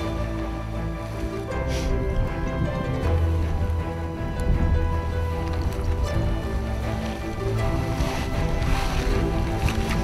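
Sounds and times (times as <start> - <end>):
sustained chords over low bass: 0.0 - 10.0.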